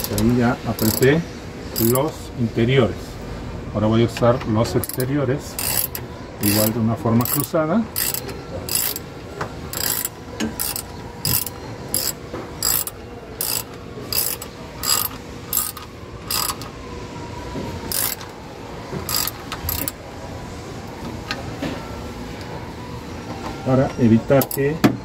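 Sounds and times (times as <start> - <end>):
hand ratchet clicking: 0.0 - 1.1, 1.7 - 2.0, 4.8 - 9.1, 9.7 - 16.7, 17.9 - 18.3, 19.1 - 20.0.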